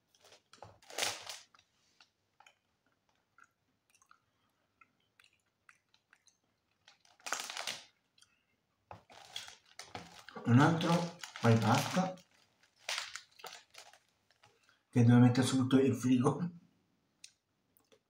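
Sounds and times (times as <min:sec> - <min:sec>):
person chewing chocolate: 0:00.0 - 0:08.4, 0:09.0 - 0:14.8.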